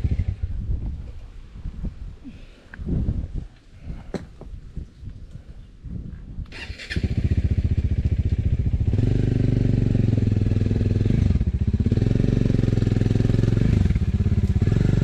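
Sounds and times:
motorcycle engine running: 0.0 - 0.9, 6.9 - 15.0.

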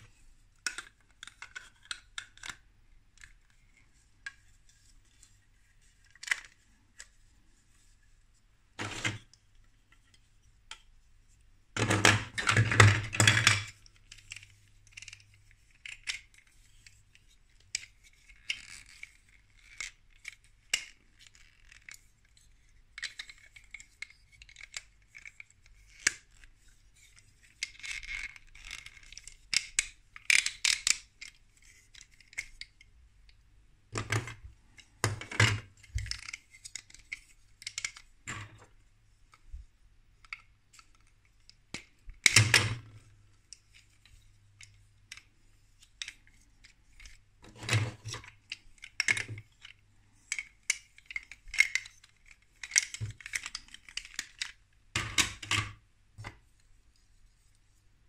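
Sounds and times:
plastic rubbing and scraping: 8.8 - 9.4, 42.1 - 54.4
plastic bricks clicking and knocking: 11.8 - 14.4, 34.0 - 38.7, 47.4 - 56.4.

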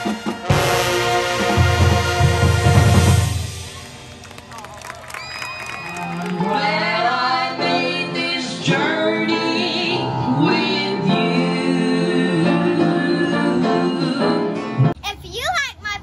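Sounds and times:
instrumental accompaniment: 0.0 - 4.3.

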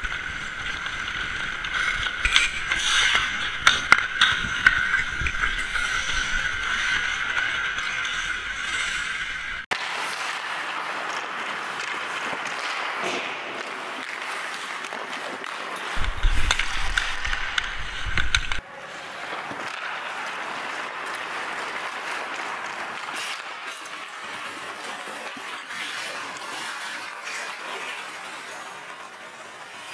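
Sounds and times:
skate blades scraping ice: 0.0 - 29.9
stick clicking on puck: 0.6 - 5.9, 11.5 - 18.6
low microphone rumble: 16.0 - 18.6.

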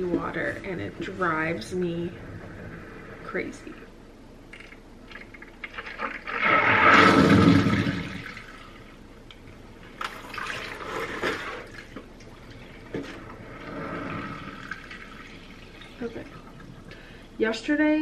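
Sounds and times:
water splashing into sink: 5.1 - 8.8, 10.0 - 17.0.

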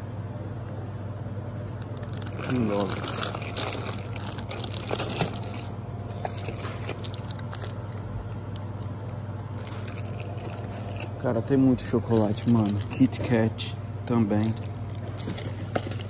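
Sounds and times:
steady low hum: 0.0 - 16.0
crackling can handling: 1.8 - 11.2, 12.0 - 13.3, 14.4 - 16.0.

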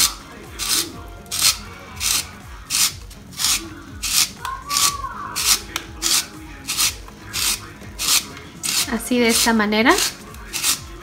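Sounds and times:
spiralizer rasping through zucchini: 0.0 - 11.0.

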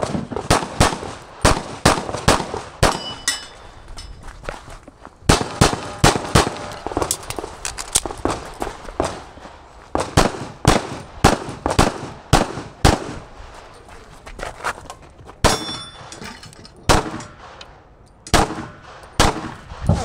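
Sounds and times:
pistol shots: 0.0 - 3.3, 5.3 - 9.4, 10.0 - 13.3, 16.9 - 17.6, 18.3 - 20.0.

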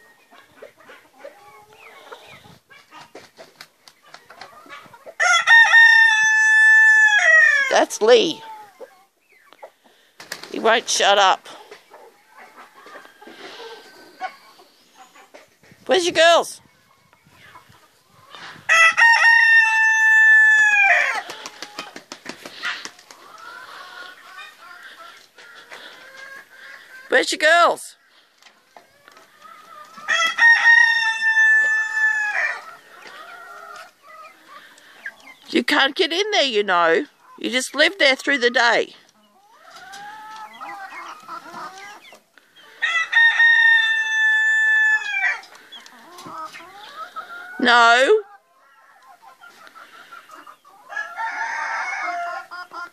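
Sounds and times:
rooster crowing: 5.2 - 7.6, 18.7 - 21.2, 30.1 - 32.6, 42.8 - 45.4, 50.9 - 52.5.

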